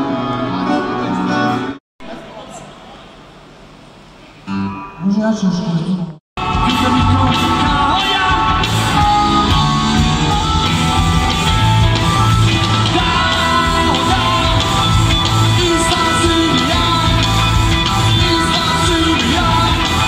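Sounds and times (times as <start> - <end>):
person singing: 6.4 - 9.1, 12.7 - 20.0
drums: 6.4 - 20.0
electric guitars: 6.4 - 20.0
live rock band playing: 6.4 - 20.0.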